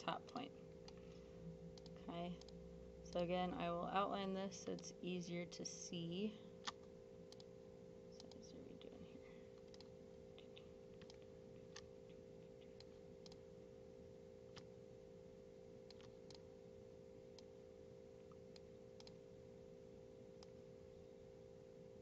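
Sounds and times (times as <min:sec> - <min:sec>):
steady hum: 0:00.0 - 0:22.0
computer mouse clicks: 0:06.6 - 0:07.5, 0:09.6 - 0:13.4, 0:15.9 - 0:16.4, 0:18.3 - 0:19.2.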